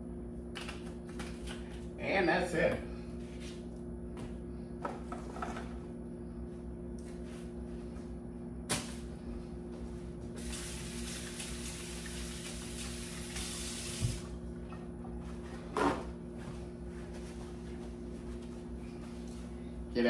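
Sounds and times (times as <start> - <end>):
steady low hum: 0.0 - 20.0
tap water running: 10.4 - 14.3.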